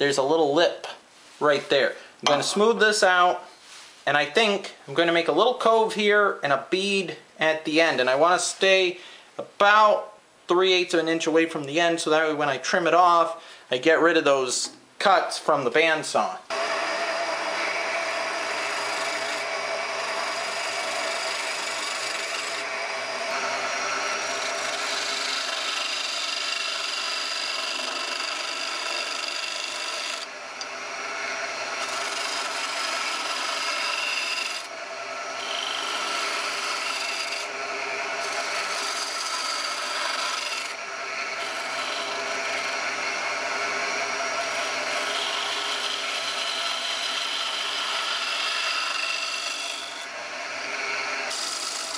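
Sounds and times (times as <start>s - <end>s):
saw motor humming: 16.5s - 51.9s
tool scraping spinning wood: 16.5s - 51.9s.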